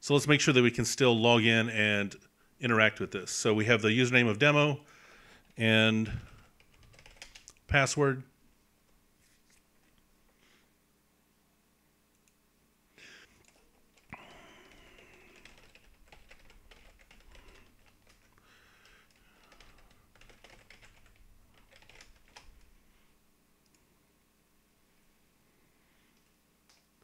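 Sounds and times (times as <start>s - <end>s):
typing on a computer keyboard: 6.2s - 7.6s, 13.4s - 22.7s.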